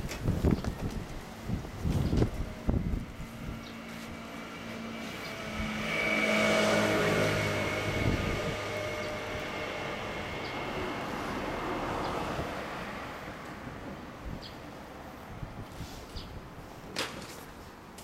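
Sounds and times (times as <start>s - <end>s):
vehicle passing by: 1.7s - 14.4s.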